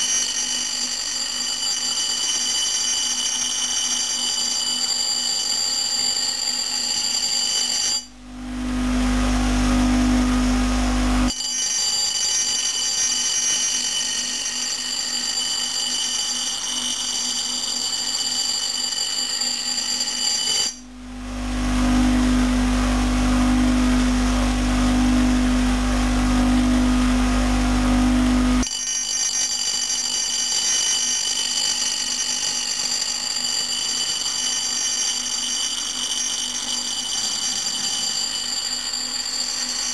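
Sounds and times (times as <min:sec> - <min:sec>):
bench grinder grinding steel: 0:00.0 - 0:39.9
low motor hum: 0:08.1 - 0:11.3, 0:20.9 - 0:28.6.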